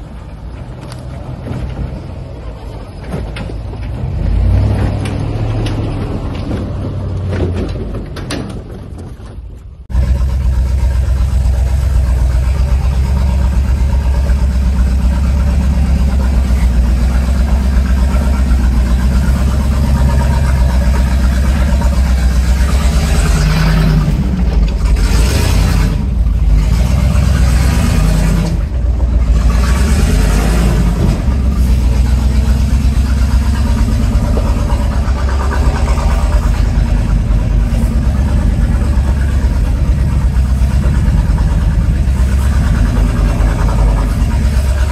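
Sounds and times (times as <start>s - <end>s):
truck engine deep rumble: 0.0s - 44.9s.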